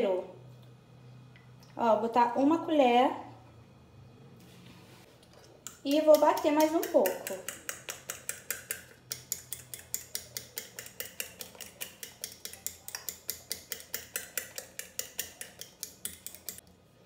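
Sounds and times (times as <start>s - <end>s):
fork beating eggs on plate: 5.2s - 16.7s.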